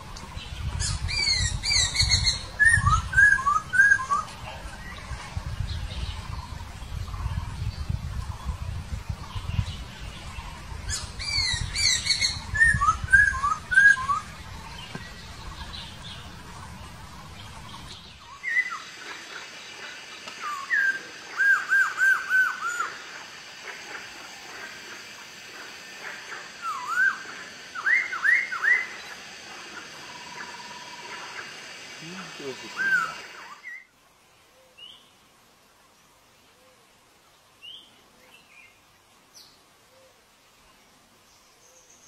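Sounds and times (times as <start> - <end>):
laughingthrush whistled song: 1.2 - 4.4, 11.0 - 14.3, 20.4 - 23.0, 26.6 - 29.0, 32.1 - 33.9.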